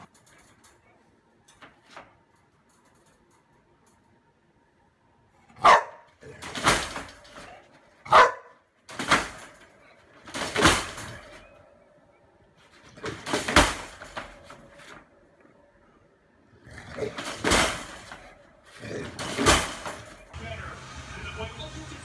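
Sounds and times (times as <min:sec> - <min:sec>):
dog barking: 0:05.5 - 0:06.1, 0:08.0 - 0:08.6.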